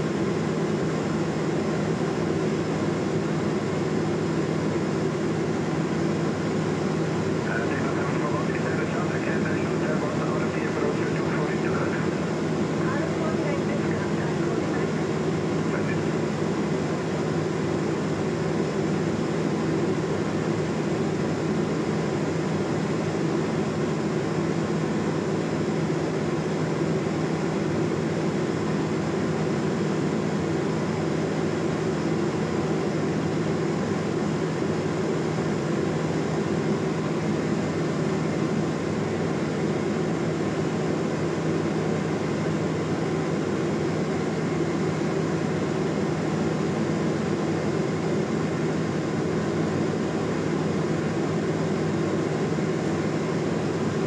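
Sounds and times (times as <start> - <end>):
aircraft engine and propeller drone: 0.0 - 54.0.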